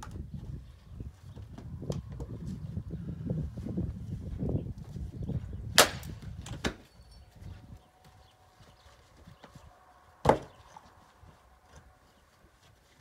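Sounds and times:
wind rumbling on microphone: 0:00.0 - 0:12.2
sharp wooden knock: 0:05.8 - 0:06.0.

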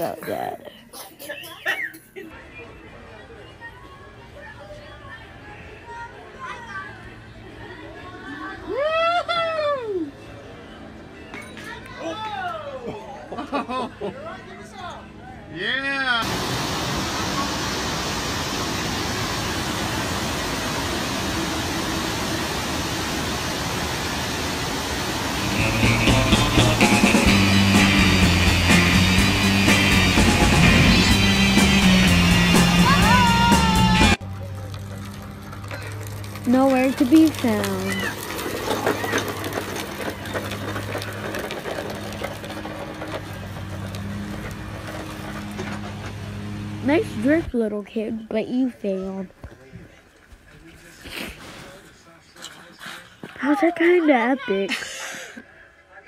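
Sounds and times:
plastic wheels rattling on concrete: 0:34.3 - 0:46.1.

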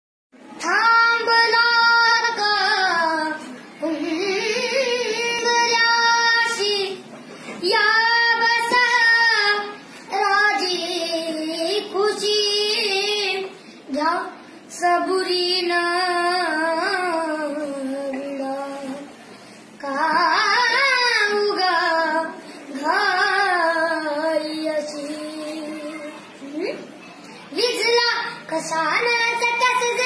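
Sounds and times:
boy singing unaccompanied: 0:00.6 - 0:19.2, 0:19.8 - 0:26.3, 0:27.5 - 0:30.0.

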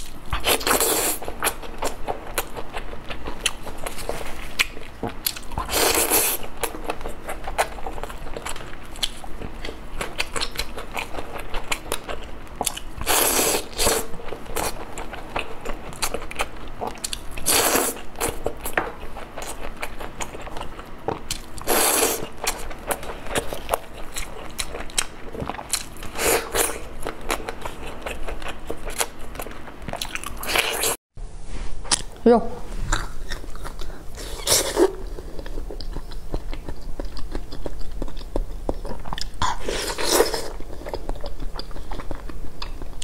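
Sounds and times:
wet chewing and smacking: 0:00.0 - 0:31.0, 0:32.9 - 0:43.0.

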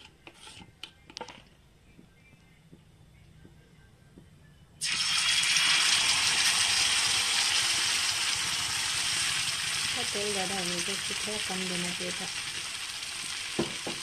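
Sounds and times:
batter sizzling in hot oil: 0:04.8 - 0:14.0.

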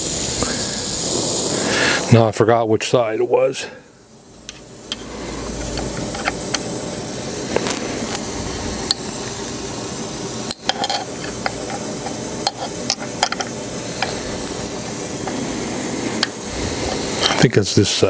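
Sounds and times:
steady hiss: 0:00.0 - 0:18.0
metal tube clinking on metal: 0:10.5 - 0:14.2.

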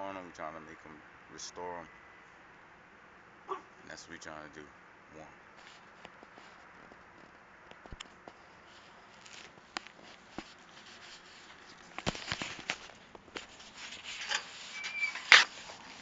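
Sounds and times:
short rubbing noises: 0:08.2 - 0:16.0.

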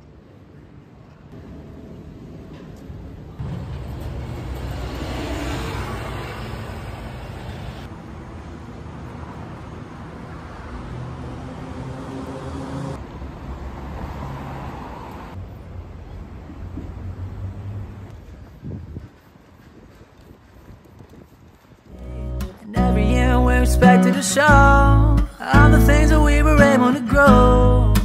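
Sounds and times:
road traffic: 0:00.0 - 0:28.0.

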